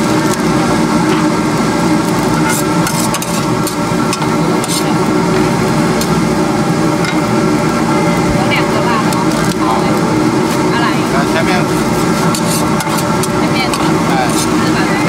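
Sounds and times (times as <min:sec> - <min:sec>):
food sizzling: 0:00.0 - 0:15.0
metal spatula scraping a wok: 0:02.3 - 0:05.0, 0:11.7 - 0:14.8.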